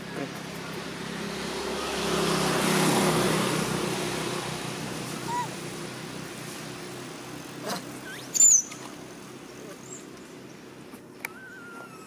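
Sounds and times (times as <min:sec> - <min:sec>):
vehicle passing: 0:00.0 - 0:08.0.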